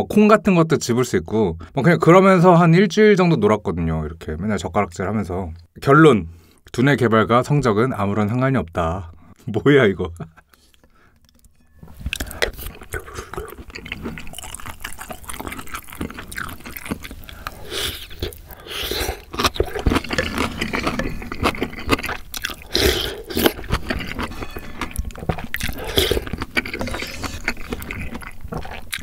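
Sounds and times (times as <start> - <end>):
person chewing and slurping soup: 10.5 - 29.0.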